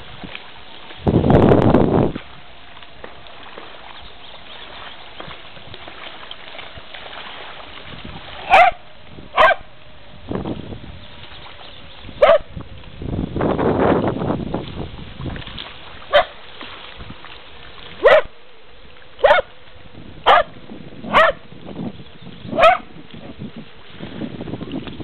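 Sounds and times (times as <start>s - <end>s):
dog barking: 8.5s - 8.8s, 9.4s - 9.6s, 12.2s - 12.5s, 16.1s - 16.3s, 18.0s - 18.3s, 19.2s - 19.5s, 20.2s - 20.5s, 21.1s - 21.4s, 22.6s - 22.9s.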